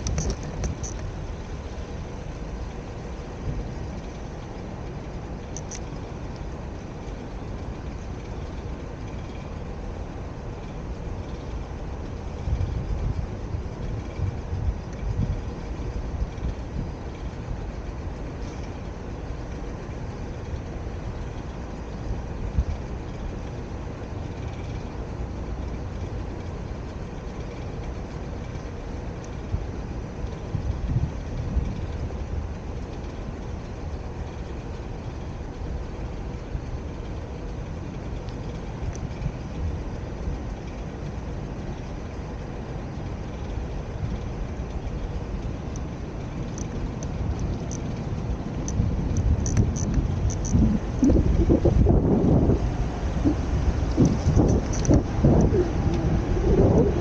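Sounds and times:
vehicle engine rumble: 0:00.0 - 0:57.0
light clicks: 0:45.7 - 0:51.2.

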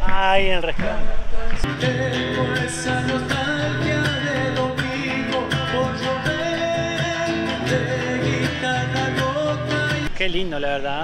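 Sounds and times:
man singing: 0:01.0 - 0:10.2
acoustic guitar strumming: 0:01.6 - 0:10.2
hand drum beat: 0:01.7 - 0:10.1.

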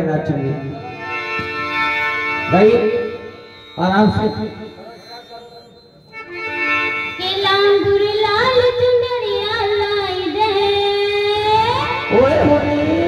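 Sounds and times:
girl singing into microphone: 0:07.2 - 0:12.0.

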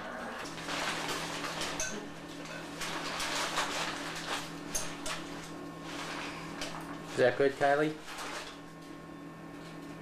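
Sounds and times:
low electrical hum: 0:00.0 - 0:10.0.

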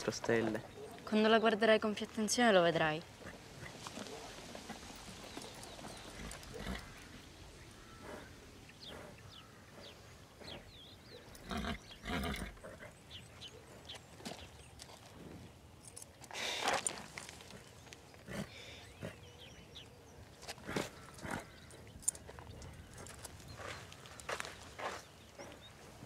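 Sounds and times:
horse noises: 0:00.0 - 0:13.2, 0:20.4 - 0:23.4.

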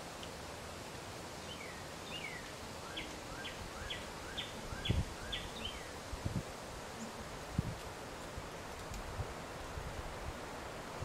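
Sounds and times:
wind in leaves: 0:00.0 - 0:11.0
songbird singing: 0:01.4 - 0:07.7.

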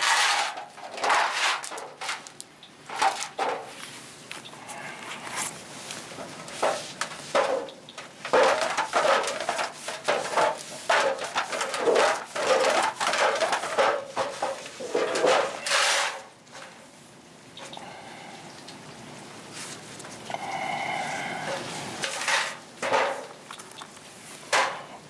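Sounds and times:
cloth scrubbing sheet metal: 0:00.0 - 0:02.3.

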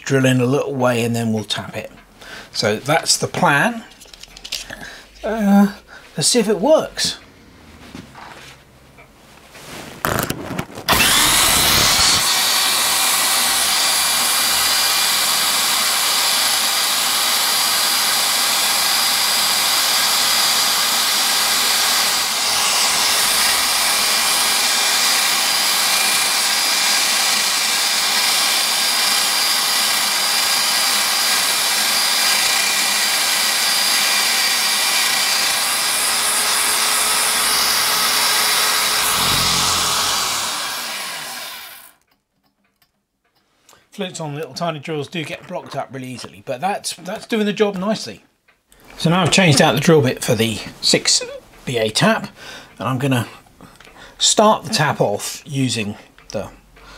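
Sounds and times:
electric drill spindle whining: 0:10.1 - 0:42.0.

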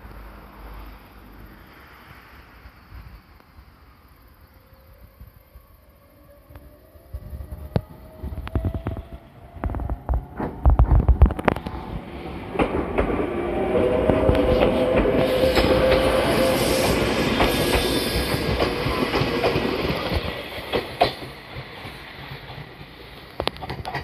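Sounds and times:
electric train whine: 0:00.0 - 0:24.0
wheels clicking on rails: 0:07.7 - 0:24.0.

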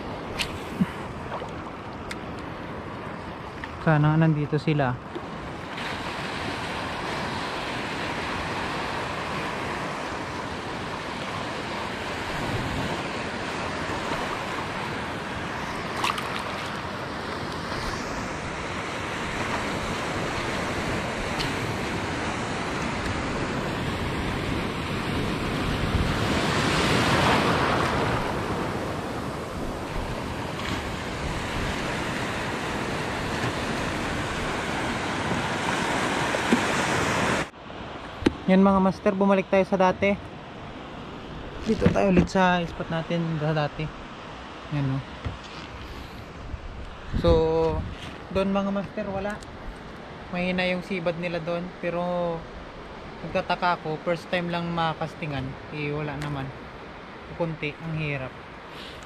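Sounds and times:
surf washing over rocks: 0:00.0 - 0:59.0
wind on microphone: 0:05.4 - 0:37.5, 0:45.1 - 0:50.1.

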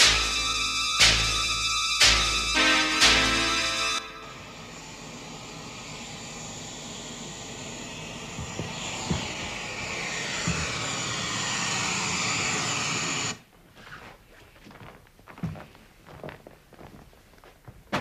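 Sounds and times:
jet aircraft flying over: 0:04.0 - 0:13.4.

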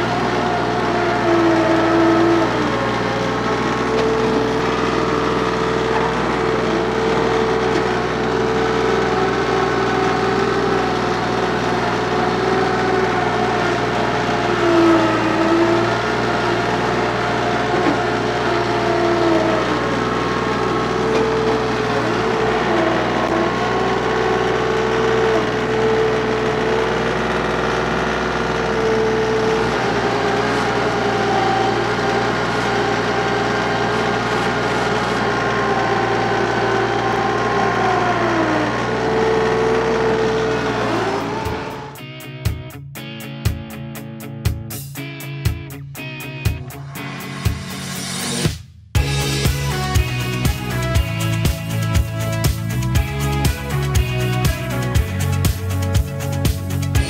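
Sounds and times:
tractor diesel engine running: 0:00.0 - 0:43.1, 0:44.7 - 0:57.0.

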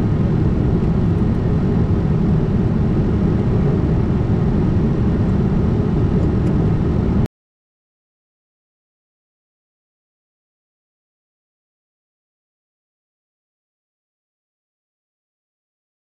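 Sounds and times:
jet cockpit airflow and engine noise: 0:00.0 - 0:07.3.

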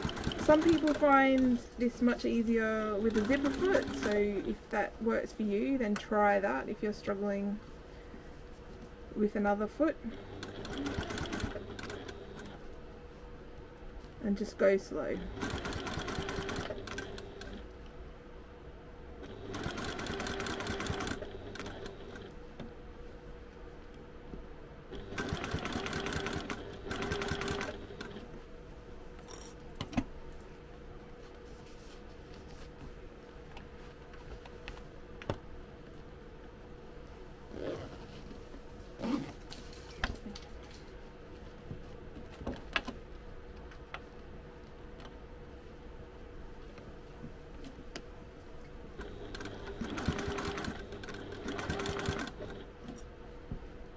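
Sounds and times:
sewing machine stitching: 0:00.0 - 0:01.6, 0:02.9 - 0:04.5, 0:10.1 - 0:12.6, 0:15.2 - 0:17.6, 0:19.2 - 0:22.3, 0:24.9 - 0:28.3, 0:49.0 - 0:52.7
faint steady hum: 0:00.0 - 0:53.9
fabric rustling: 0:31.0 - 0:35.0.

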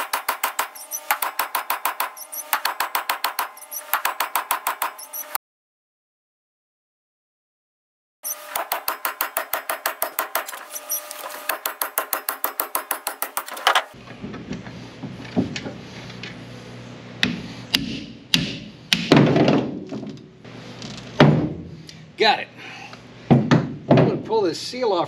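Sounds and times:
hammer striking steel: 0:00.0 - 0:05.4, 0:08.3 - 0:13.6, 0:17.2 - 0:19.1.

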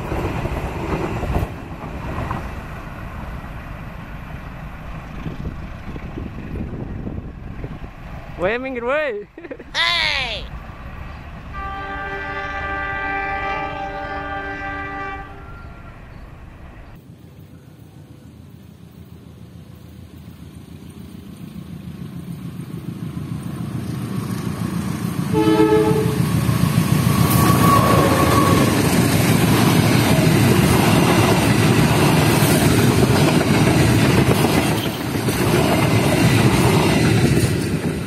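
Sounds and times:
train wheels on rails: 0:00.0 - 0:09.6, 0:10.5 - 0:38.0
diesel locomotive rumble: 0:00.0 - 0:38.0
train horn blast: 0:11.5 - 0:16.1, 0:25.3 - 0:26.3, 0:27.3 - 0:28.8.

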